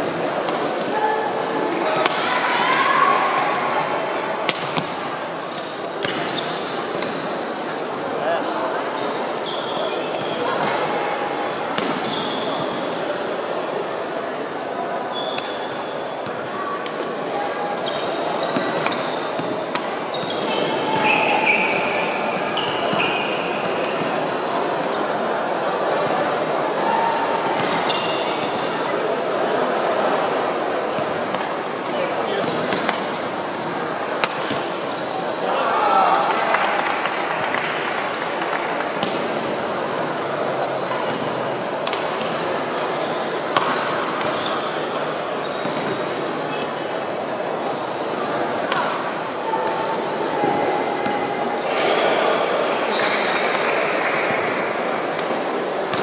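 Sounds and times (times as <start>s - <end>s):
din of many people: 0.0s - 56.0s
murmur of voices in a hall: 0.0s - 56.0s.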